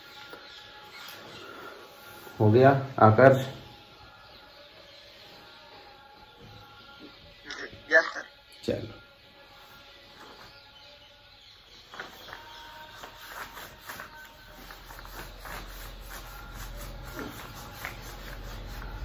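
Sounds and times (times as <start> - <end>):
duster rubbing whiteboard: 12.8 - 19.0.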